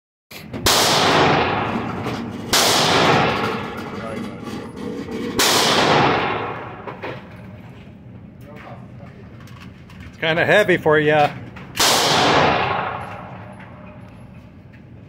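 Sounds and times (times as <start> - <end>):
echoing gunshots indoors: 0.5 - 4.2, 5.2 - 7.5, 11.4 - 14.4.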